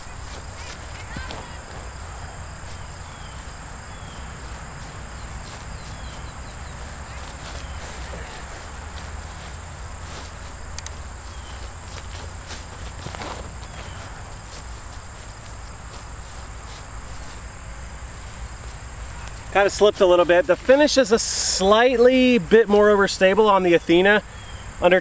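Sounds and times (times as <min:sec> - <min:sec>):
insects droning: 0:00.0 - 0:25.0.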